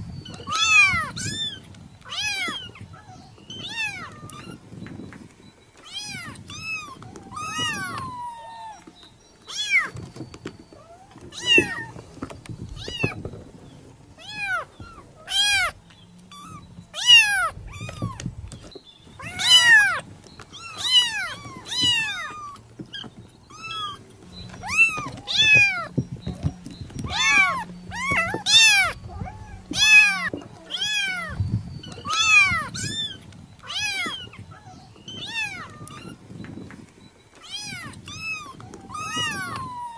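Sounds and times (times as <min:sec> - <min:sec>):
kittens mewing: 0:05.8 - 0:08.9, 0:10.8 - 0:12.0, 0:14.2 - 0:18.4, 0:19.1 - 0:26.4, 0:27.0 - 0:36.3, 0:37.4 - 0:39.9.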